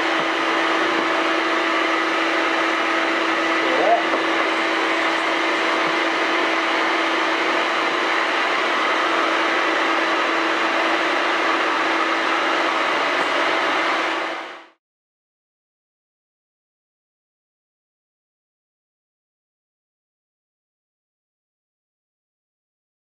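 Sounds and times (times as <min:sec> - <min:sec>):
blower whirring: 0:00.0 - 0:14.8.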